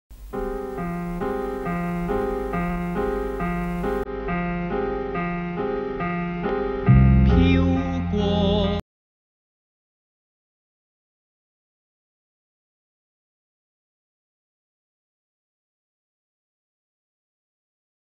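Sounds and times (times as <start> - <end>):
bass and accompaniment: 0.1 - 8.8
piano broken chords: 0.1 - 8.8
person singing: 0.3 - 4.0, 6.9 - 8.8.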